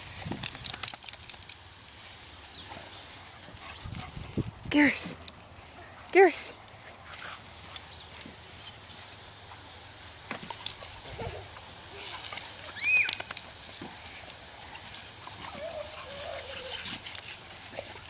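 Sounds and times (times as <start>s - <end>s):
lawn sprinkler spraying: 0.0s - 18.0s
wavering cry: 12.6s - 13.2s, 15.5s - 17.0s.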